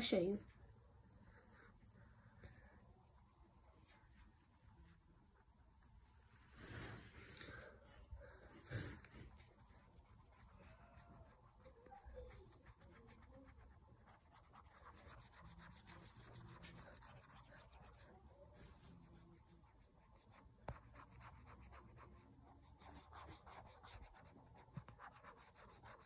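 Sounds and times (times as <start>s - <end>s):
scratchy colouring strokes: 2.8s - 7.8s, 8.5s - 26.0s.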